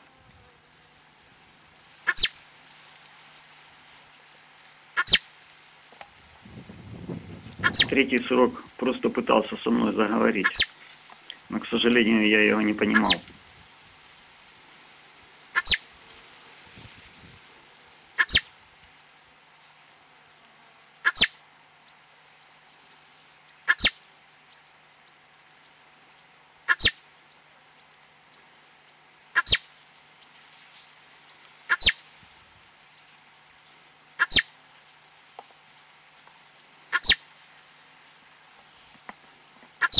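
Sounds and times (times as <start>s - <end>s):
marmot high-pitched call: 2.1s - 2.4s, 5.0s - 5.4s, 7.6s - 8.0s, 10.3s - 10.8s, 12.8s - 13.3s, 15.6s - 15.9s, 18.2s - 18.6s, 21.0s - 21.4s, 23.7s - 24.1s, 26.7s - 27.1s, 29.4s - 29.7s, 31.7s - 32.1s, 34.2s - 34.6s, 36.9s - 37.3s.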